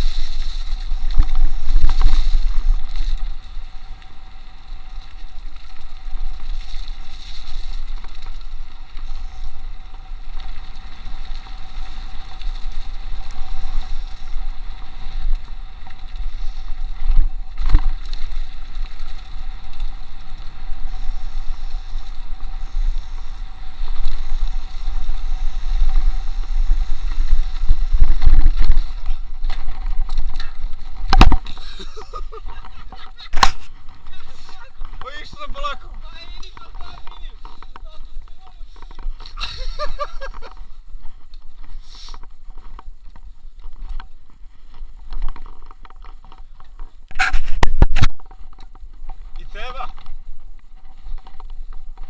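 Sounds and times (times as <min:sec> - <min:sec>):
bike rumbling and rattling: 0:00.0 - 0:52.0
wind on microphone: 0:09.0 - 0:35.0.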